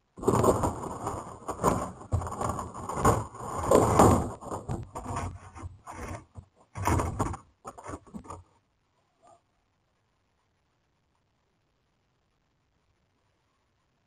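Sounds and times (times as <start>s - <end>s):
plastic bins knocked and dragged: 0.1s - 8.5s.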